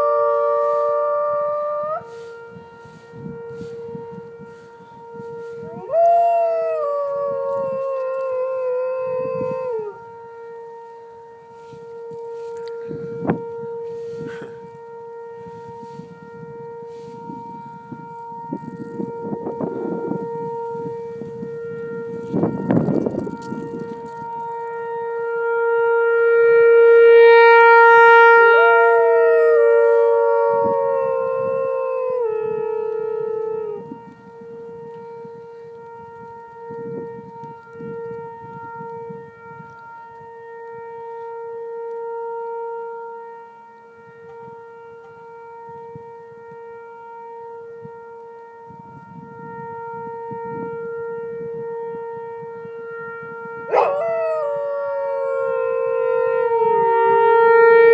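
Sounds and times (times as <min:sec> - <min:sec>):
warning siren steady tone: 0:00.0 - 0:57.9
higher wail sliding down: 0:53.7 - 0:57.9.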